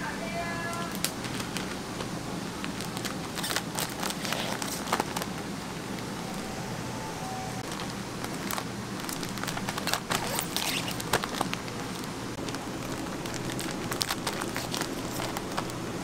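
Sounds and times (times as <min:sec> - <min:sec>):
steady low hum: 0:00.0 - 0:16.0
plastic film crinkling: 0:00.8 - 0:05.5, 0:07.6 - 0:16.0.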